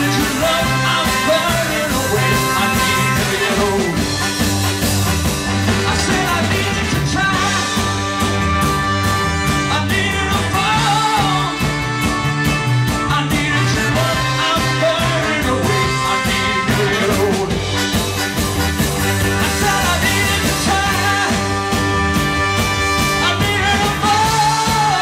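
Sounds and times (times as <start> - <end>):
person singing: 0.0 - 4.1, 5.7 - 8.4, 9.5 - 12.0, 13.0 - 17.6, 19.3 - 21.9, 23.1 - 25.0
bass: 0.0 - 25.0
drums: 0.0 - 25.0
electric guitars: 0.0 - 25.0
horn section: 0.0 - 25.0
keyboard: 0.0 - 25.0.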